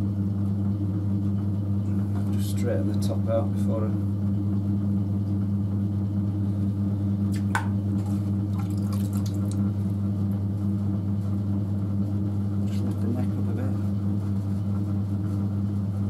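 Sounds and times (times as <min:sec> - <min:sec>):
potter's wheel motor hum: 0:00.0 - 0:16.0
wet squishing of clay: 0:07.4 - 0:09.8.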